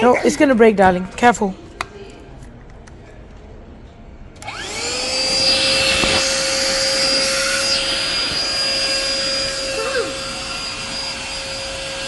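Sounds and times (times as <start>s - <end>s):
handheld vacuum cleaner whine: 4.4s - 12.0s.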